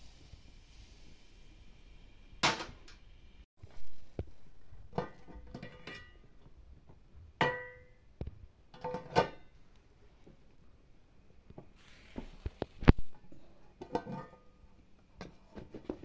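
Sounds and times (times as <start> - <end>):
kitchenware clinking and knocking: 4.8 - 6.2, 7.4 - 8.0, 8.7 - 9.6, 13.8 - 14.6.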